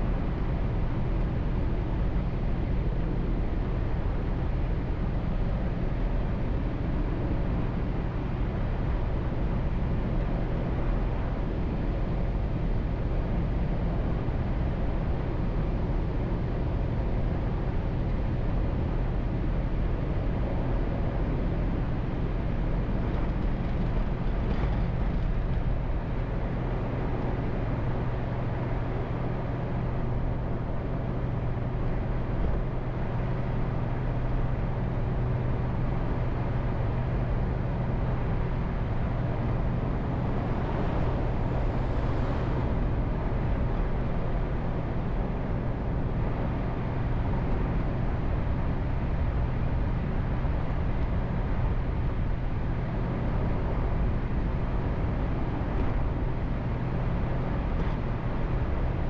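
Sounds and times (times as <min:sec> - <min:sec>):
constant low hum: 0:00.0 - 0:59.0
car engine and tyre drone: 0:39.8 - 0:44.0.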